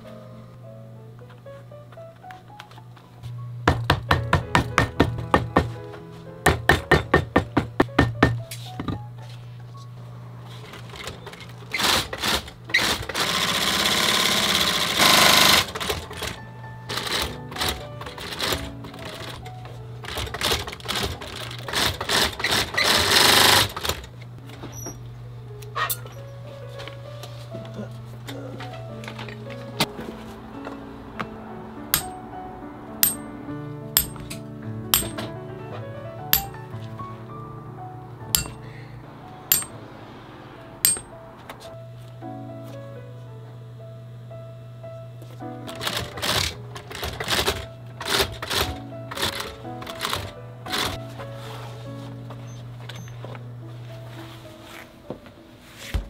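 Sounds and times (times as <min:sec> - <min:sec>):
background music: 0:00.0 - 0:10.4, 0:13.8 - 0:22.5, 0:25.1 - 0:55.9
industrial sewing machine stitching: 0:11.7 - 0:19.4, 0:20.0 - 0:24.0, 0:45.8 - 0:51.0
hammer tapping leather: 0:34.0 - 0:34.2, 0:35.0 - 0:35.2, 0:38.4 - 0:38.6.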